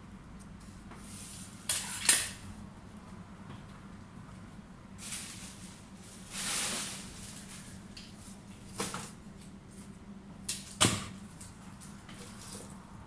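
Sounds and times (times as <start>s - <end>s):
leaves rustling: 5.0s - 8.4s.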